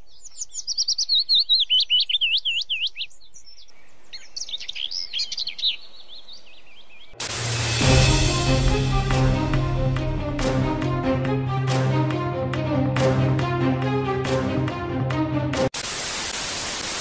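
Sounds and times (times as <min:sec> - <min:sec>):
songbird chirping: 0:00.0 - 0:07.2
music: 0:07.2 - 0:15.7.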